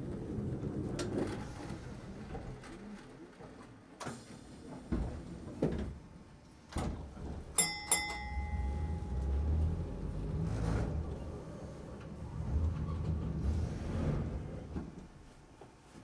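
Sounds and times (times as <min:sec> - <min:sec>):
tram motors rumbling: 0:07.2 - 0:15.2
tram bell dinging: 0:07.6 - 0:10.1.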